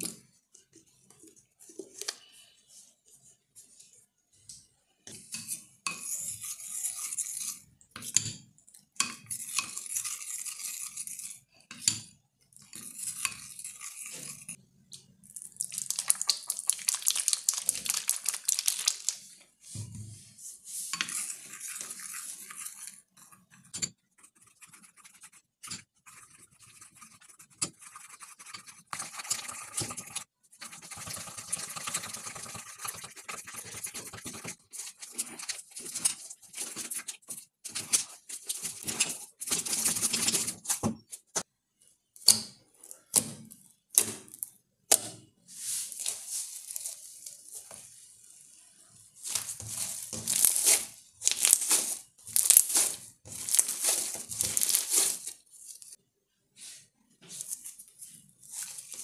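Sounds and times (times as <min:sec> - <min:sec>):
plastic spoon scraping glass bowl: 0:05.1 - 0:08.2, 0:09.0 - 0:11.9, 0:12.6 - 0:14.6, 0:20.7 - 0:41.1.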